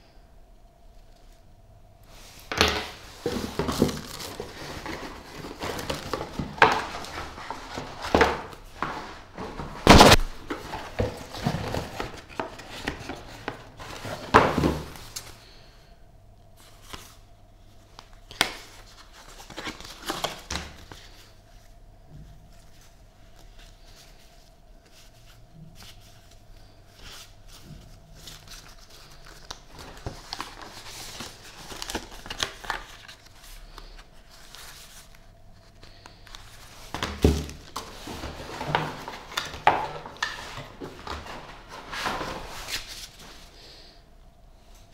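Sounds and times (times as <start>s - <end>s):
faint steady hum: 0.0s - 44.9s
plastic and paper crinkling: 2.9s - 15.5s, 17.8s - 21.7s, 22.3s - 43.6s.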